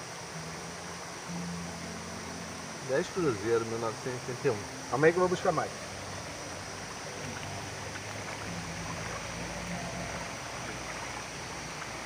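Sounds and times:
waterfall and stream rushing: 0:00.0 - 0:12.0.

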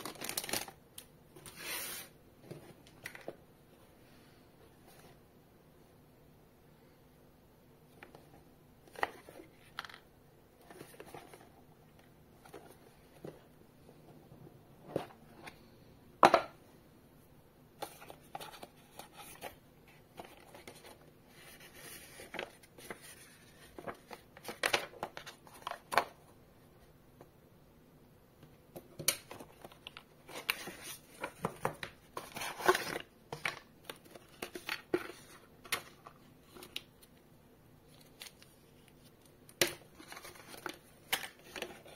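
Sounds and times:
paper rustling and crinkling: 0:00.0 - 0:00.8, 0:17.8 - 0:26.2, 0:29.2 - 0:37.1, 0:37.9 - 0:41.9
cardboard sliding and scraping: 0:01.4 - 0:02.2.

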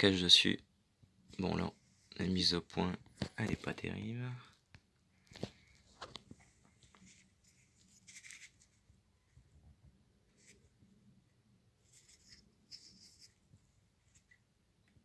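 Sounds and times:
faint scratchy handling noises: 0:01.1 - 0:15.0.

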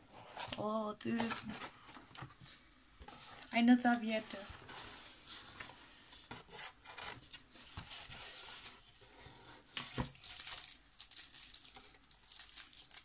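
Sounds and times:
paper rustling and crinkling: 0:03.0 - 0:13.0.

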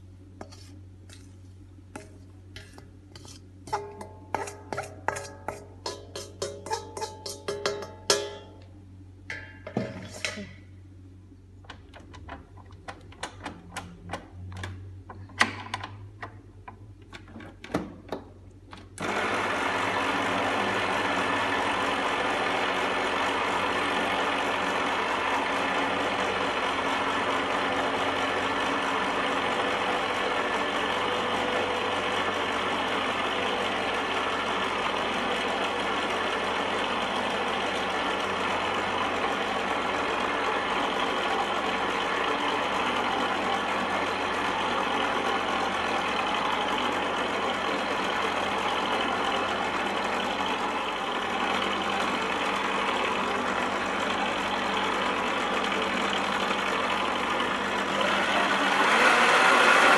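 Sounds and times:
clicks and knocks of mixer parts: 0:11.6 - 0:19.0
electric stand mixer running: 0:19.0 - 0:59.9.

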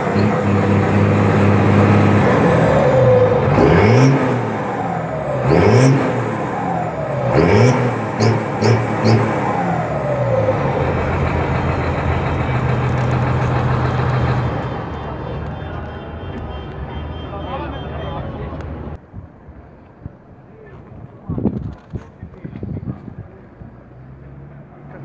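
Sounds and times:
diesel tractor engine revving: 0:00.0 - 0:19.0.

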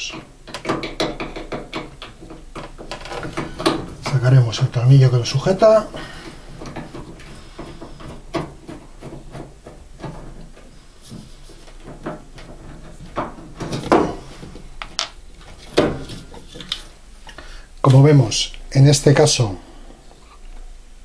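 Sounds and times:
clicks and knocks of metal: 0:00.0 - 0:04.2, 0:05.5 - 0:17.4.

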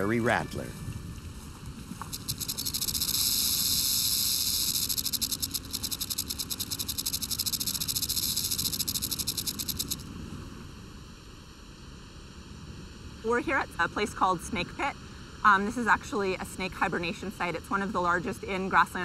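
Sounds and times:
rattlesnake tail rattle buzz: 0:01.5 - 0:10.1.

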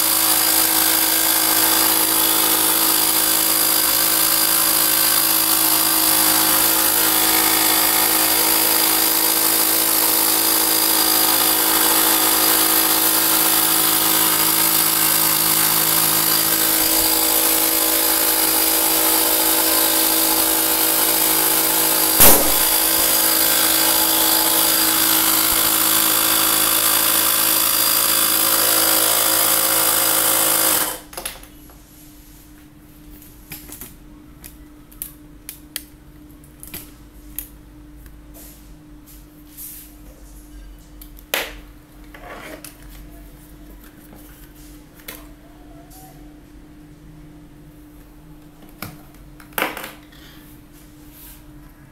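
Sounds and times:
air compressor running: 0:00.0 - 0:31.1
balloon bang: 0:22.2 - 0:23.1.

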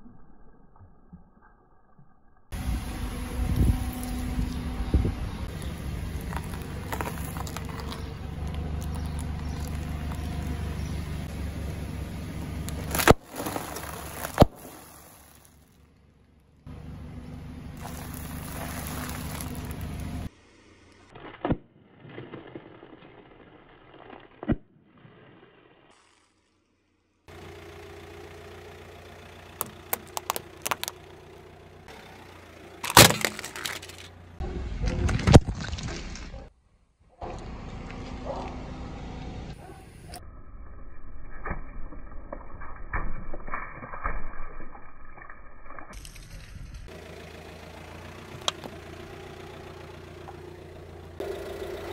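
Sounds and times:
car rolling with low rumble: 0:02.5 - 0:20.3, 0:27.3 - 0:36.5, 0:37.1 - 0:43.5, 0:45.8 - 0:51.9
tyre crunching hard candies: 0:05.5 - 0:10.6, 0:12.7 - 0:15.6, 0:17.8 - 0:20.2, 0:29.6 - 0:31.0, 0:32.8 - 0:34.1
chip bags bursting with loud pops: 0:12.8 - 0:15.4, 0:32.8 - 0:34.0
tyre rumbling over foil pouches: 0:12.8 - 0:15.5, 0:17.8 - 0:20.0, 0:32.8 - 0:34.1
plastic pieces snapping: 0:29.6 - 0:31.0, 0:32.8 - 0:34.1
plastic toy crunching: 0:29.6 - 0:31.0, 0:32.8 - 0:34.1.

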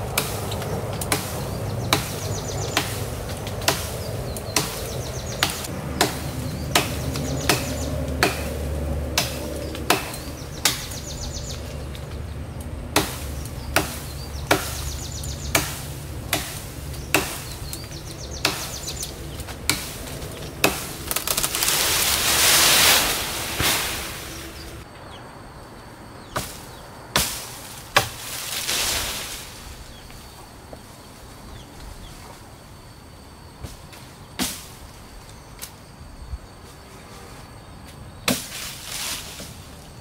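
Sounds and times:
machete chopping branch: 0:00.1 - 0:12.1, 0:13.0 - 0:24.6, 0:26.4 - 0:29.4, 0:34.4 - 0:34.8, 0:38.3 - 0:39.6
branch crashing through leaves: 0:19.7 - 0:24.8, 0:27.2 - 0:30.0, 0:38.3 - 0:39.7.

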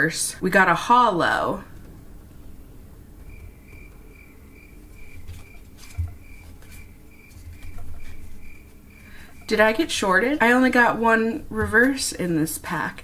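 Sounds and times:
cards rustling: 0:04.9 - 0:09.6.

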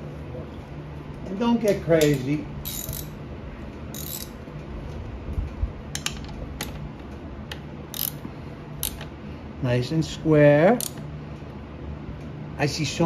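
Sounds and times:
ratchet wrench clicking: 0:01.7 - 0:03.2, 0:03.9 - 0:04.4, 0:07.9 - 0:08.2, 0:08.8 - 0:09.1, 0:10.7 - 0:11.0.

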